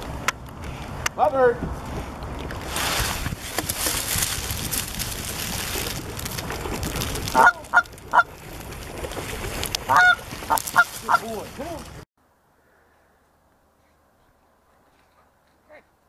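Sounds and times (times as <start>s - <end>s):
dry stems rustling and crackling: 1.7s - 12.0s
water splashing: 2.2s - 12.0s
geese honking: 7.2s - 8.6s, 9.8s - 11.9s.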